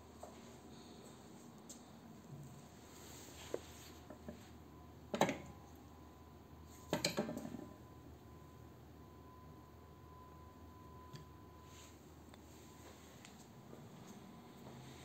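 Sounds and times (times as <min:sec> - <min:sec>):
metal clunks and clinks: 0:06.9 - 0:07.6.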